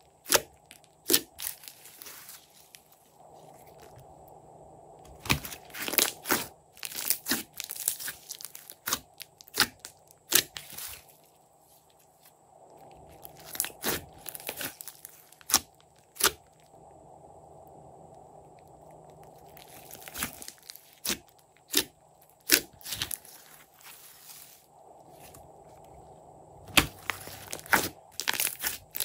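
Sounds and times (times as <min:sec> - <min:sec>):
slime crackling and popping: 0:00.0 - 0:02.8, 0:05.1 - 0:11.2, 0:13.1 - 0:16.6, 0:18.6 - 0:24.6, 0:26.7 - 0:29.0.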